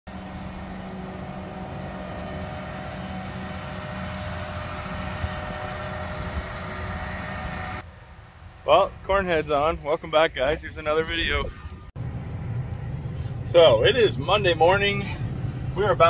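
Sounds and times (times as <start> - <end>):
combine diesel engine running: 0.1 - 9.6.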